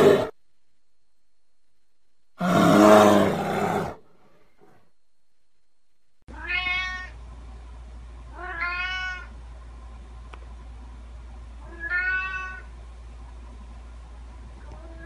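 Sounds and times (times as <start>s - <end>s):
bear vocalisation: 0.0s - 0.3s
low steady hum: 0.0s - 15.0s
cat meowing: 6.3s - 7.2s, 8.4s - 9.3s, 11.6s - 12.7s.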